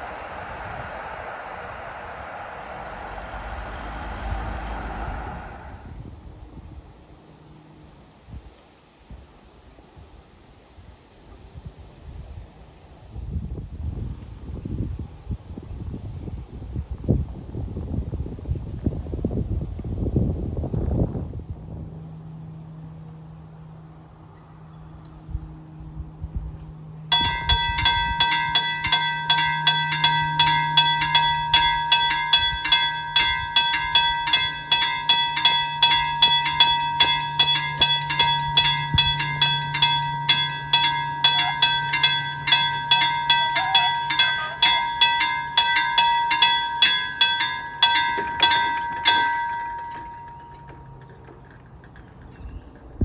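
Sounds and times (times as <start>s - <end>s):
level-crossing warning bell ringing: 0.0s - 5.0s, 27.1s - 51.6s.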